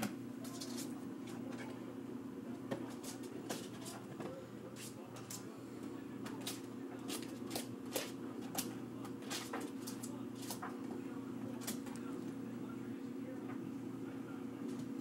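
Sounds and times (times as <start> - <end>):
steady low hum: 0.0 - 15.0
dog paws scratching plastic: 0.4 - 1.8, 2.7 - 5.4, 6.2 - 12.1.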